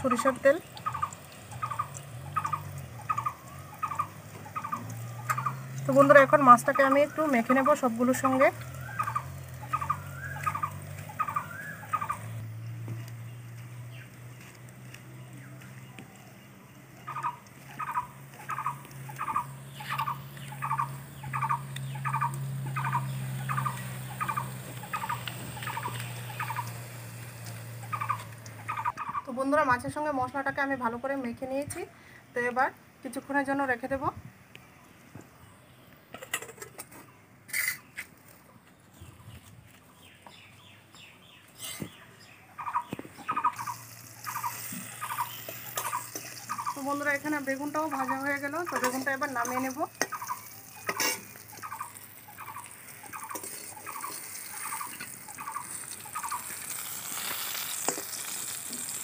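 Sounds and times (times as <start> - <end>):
chattering chirp: 0.0 - 14.4, 15.3 - 29.7, 39.0 - 57.9
food frying: 0.0 - 15.8, 17.0 - 28.9, 43.2 - 59.0
chickens clucking: 0.7 - 5.8, 8.8 - 12.4, 17.0 - 29.3, 42.6 - 57.6
metal spatula scraping a wok: 37.5 - 38.0, 41.6 - 41.9, 50.8 - 51.4.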